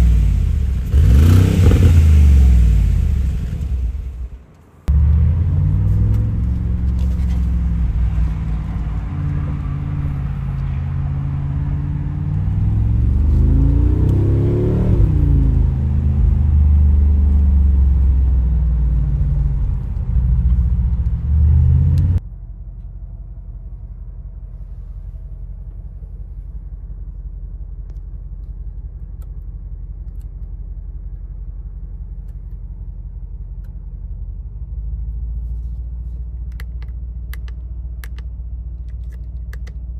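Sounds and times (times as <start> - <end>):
car engine revving: 0.0 - 4.3, 4.9 - 22.2.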